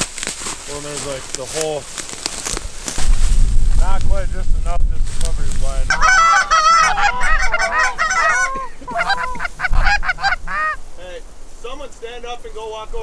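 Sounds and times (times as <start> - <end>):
geese honking and clucking: 5.9 - 10.8.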